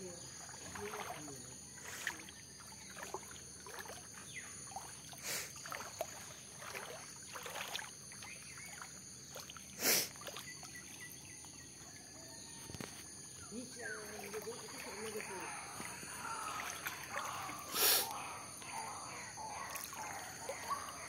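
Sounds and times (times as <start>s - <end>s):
water lapping: 0.0s - 11.8s, 13.1s - 21.0s.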